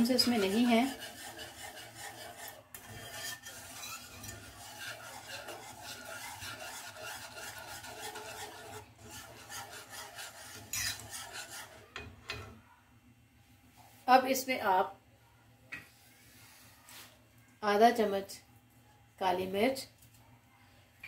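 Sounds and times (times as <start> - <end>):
wire whisk scraping a pan: 0.0 - 12.6.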